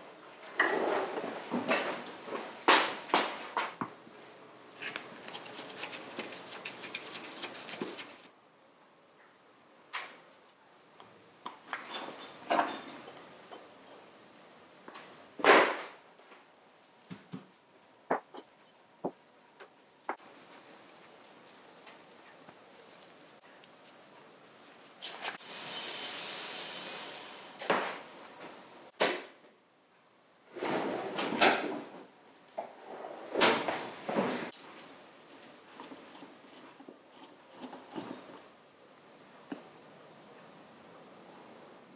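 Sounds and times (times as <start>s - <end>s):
hiss: 25.4s - 27.7s
metal drawer opening and shutting: 30.5s - 32.0s, 32.8s - 34.6s.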